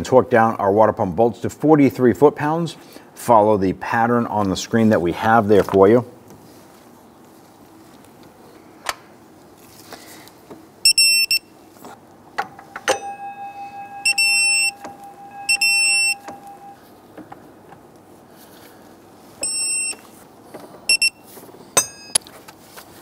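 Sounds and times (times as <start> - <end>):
short high beeps: 10.8 - 11.5, 12.9 - 16.8, 19.4 - 20.0, 20.9 - 21.2
lower steady tone: 12.5 - 16.8.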